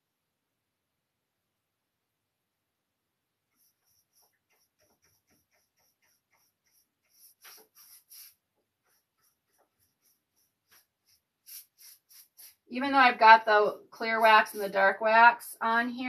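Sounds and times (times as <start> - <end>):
applicator rubbing on wooden lid: 3.6 - 12.7.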